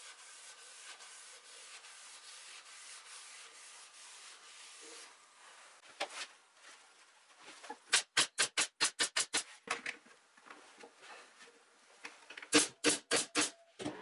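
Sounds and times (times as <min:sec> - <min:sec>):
pneumatic staple gun firing: 0:07.9 - 0:09.4, 0:12.5 - 0:13.5.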